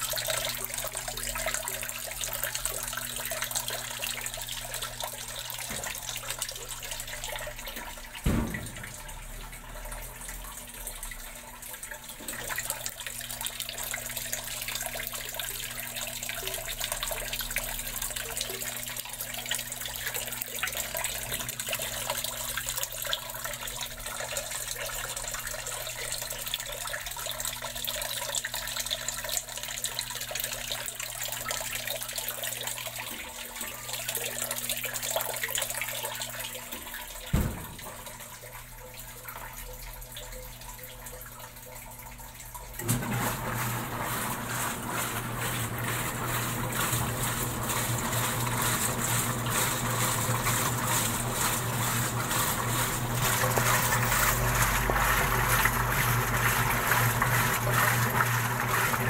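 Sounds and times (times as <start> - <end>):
water running into washer: 0.0 - 59.0
sharp knock: 8.2 - 9.2, 37.3 - 37.9.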